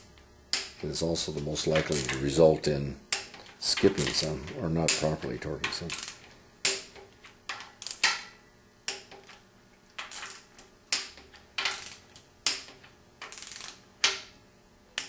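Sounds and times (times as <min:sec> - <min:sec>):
torque wrench clicking: 0:05.9 - 0:08.3, 0:10.0 - 0:14.2.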